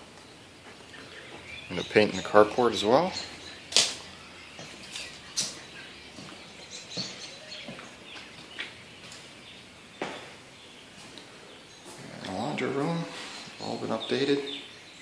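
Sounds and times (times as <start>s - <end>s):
soft footstep knocks: 10.0s - 10.4s.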